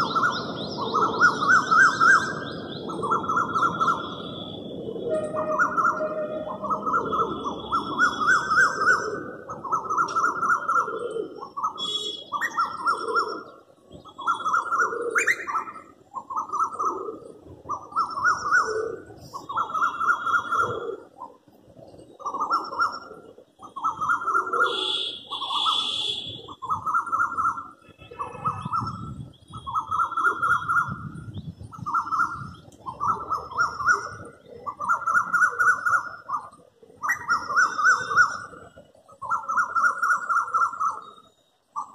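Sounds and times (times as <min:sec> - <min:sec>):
small birds chirping: 0:00.0 - 0:04.7
cuckoo calling shrilly: 0:00.0 - 0:21.4, 0:22.2 - 0:41.9.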